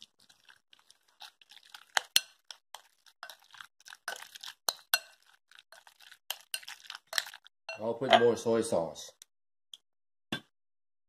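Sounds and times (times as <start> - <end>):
metal spoon scraping glass bowl: 4.0 - 8.4.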